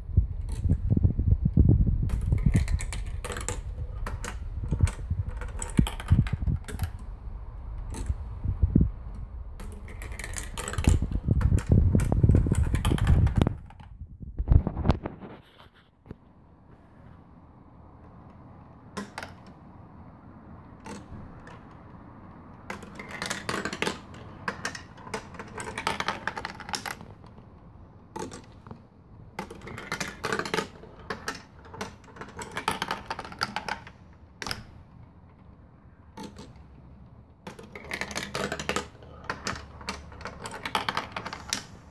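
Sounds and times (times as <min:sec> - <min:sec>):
marble run plastic clicking and rattling: 0:00.4 - 0:00.9, 0:02.0 - 0:07.1, 0:07.7 - 0:08.4, 0:09.1 - 0:13.9, 0:18.9 - 0:19.6, 0:20.7 - 0:21.8, 0:22.5 - 0:41.9.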